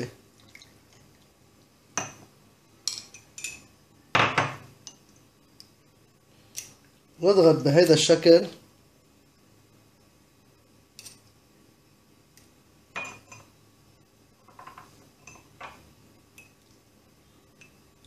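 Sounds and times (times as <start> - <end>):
metal spoon clinking on cup: 13.0 - 13.5.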